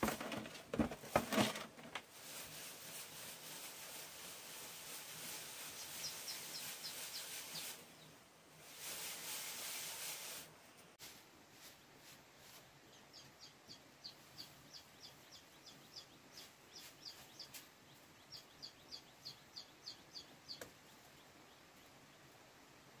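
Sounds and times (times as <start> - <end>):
small bird chirping: 3.5 - 8.2, 12.4 - 22.4.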